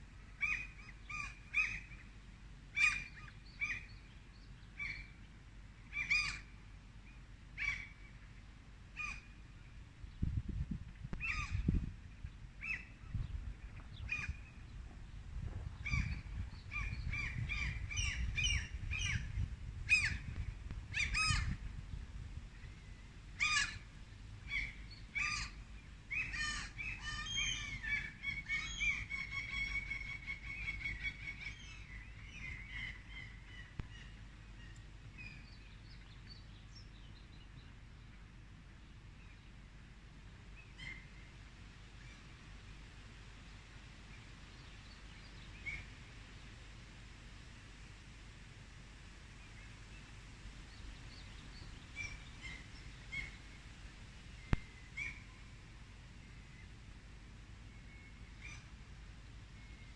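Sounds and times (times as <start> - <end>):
birds calling: 2.8 - 5.2, 5.9 - 6.6, 11.1 - 14.8, 15.7 - 21.6, 22.5 - 37.6, 49.5 - 56.8.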